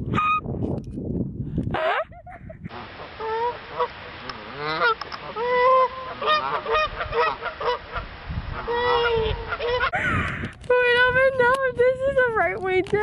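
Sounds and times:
geese honking: 0:02.7 - 0:09.9.

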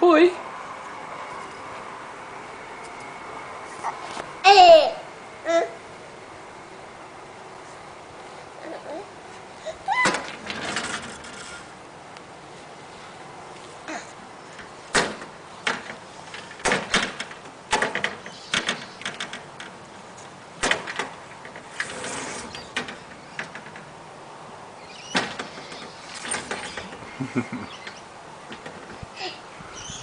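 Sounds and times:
glass door knocking and rattling: 0:10.0 - 0:11.6, 0:14.6 - 0:19.8, 0:20.6 - 0:24.0, 0:24.8 - 0:27.1, 0:27.8 - 0:29.0.

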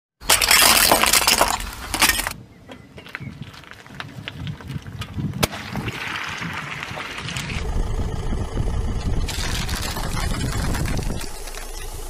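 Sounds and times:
tyre crushing plastic toys: 0:00.2 - 0:02.4
tyre rumble: 0:03.4 - 0:12.0.

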